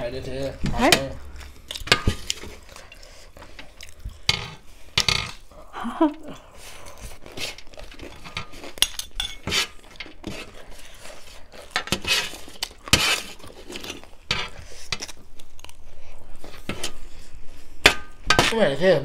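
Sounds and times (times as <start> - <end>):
crunchy chewing: 1.2 - 5.6, 6.4 - 17.8
spoons clinking on plates: 8.1 - 9.6.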